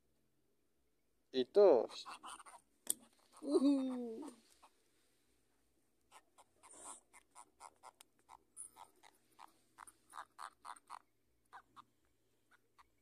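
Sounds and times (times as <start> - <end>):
frogs croaking: 6.1 - 13.0.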